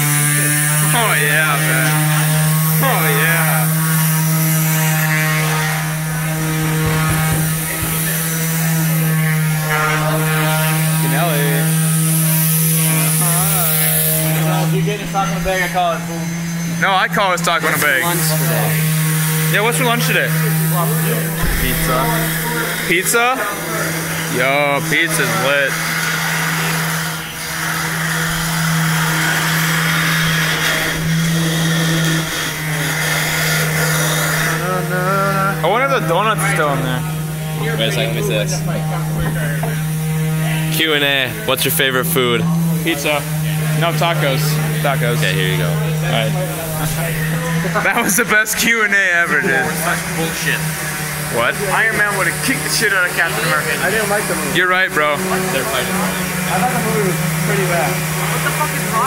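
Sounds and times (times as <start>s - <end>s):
power tool motor humming: 0.0s - 59.0s
dull low thumps: 6.0s - 8.6s, 21.2s - 23.0s.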